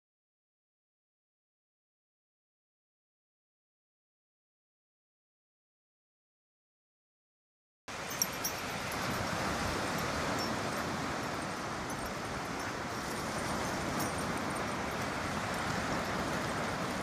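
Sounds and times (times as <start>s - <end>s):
surf breaking on shore: 7.9s - 17.0s
wind buffeting microphone: 8.0s - 17.0s.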